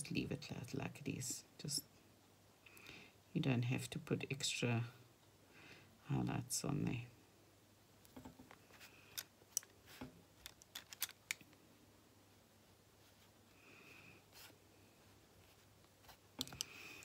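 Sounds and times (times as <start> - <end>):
paintbrushes clicking and tapping: 16.3 - 17.0.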